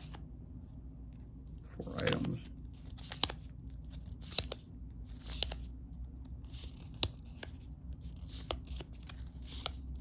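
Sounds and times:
cards sliding and rubbing: 1.5 - 10.0
cards clicking apart: 2.8 - 5.7, 6.4 - 10.0.

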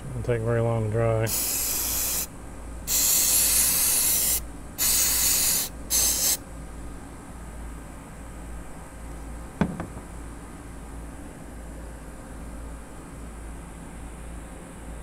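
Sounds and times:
aerosol can spraying: 1.3 - 2.3, 2.9 - 6.4.

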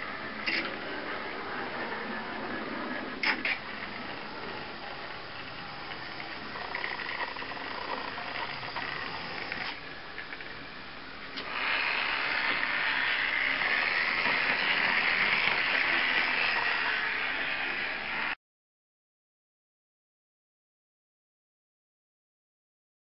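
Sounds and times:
small electric motor whirring: 3.8 - 9.8, 11.4 - 18.4.

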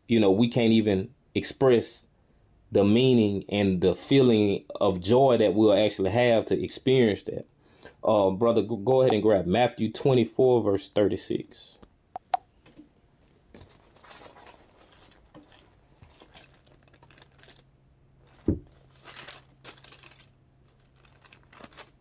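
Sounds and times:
faint rustling and crackling: 12.7 - 22.0.

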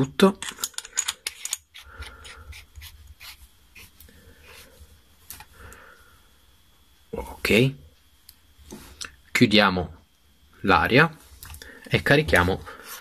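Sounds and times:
small metal parts clicking: 0.3 - 1.7
parts scraping while screwed together: 0.3 - 3.9
soft breathing: 1.8 - 3.0, 3.8 - 6.6, 11.2 - 12.0, 12.6 - 13.0.

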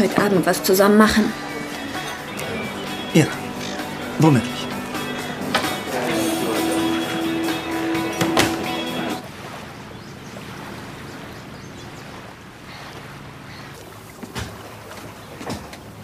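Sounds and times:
background music: 0.0 - 9.2
water: 0.0 - 16.0
wind: 0.0 - 16.0.

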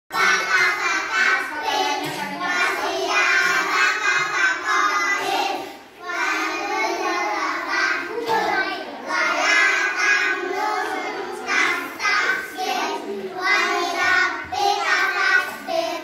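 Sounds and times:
children chanting in unison: 0.1 - 16.0.

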